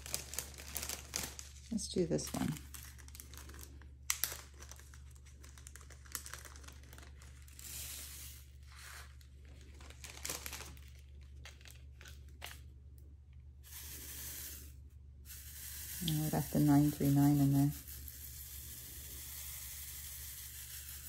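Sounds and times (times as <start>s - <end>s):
plastic bag crinkling: 0.0s - 12.8s.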